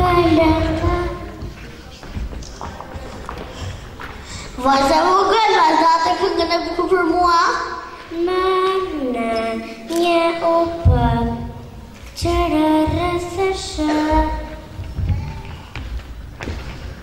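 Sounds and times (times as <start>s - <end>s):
child singing into microphone: 0.0s - 1.6s, 4.6s - 16.0s.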